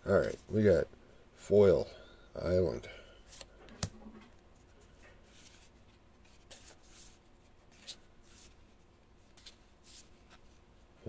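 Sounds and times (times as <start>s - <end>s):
cards sliding and flipping: 3.3s - 4.0s, 4.6s - 10.6s.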